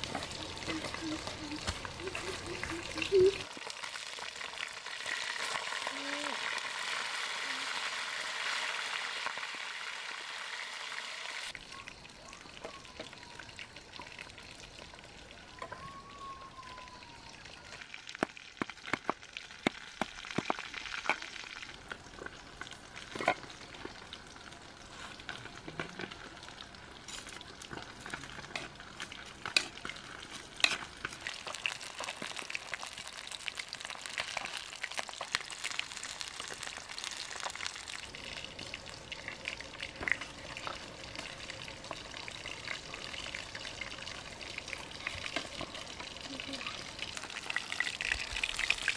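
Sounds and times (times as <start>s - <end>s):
fish sizzling in hot oil: 0.0s - 15.5s, 16.7s - 48.9s
faint gliding whistles: 11.6s - 13.8s, 15.0s - 17.8s.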